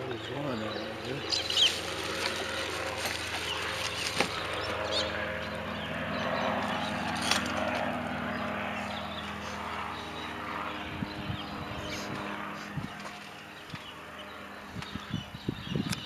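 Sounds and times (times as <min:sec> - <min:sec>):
helicopter flying overhead: 0:00.0 - 0:16.0.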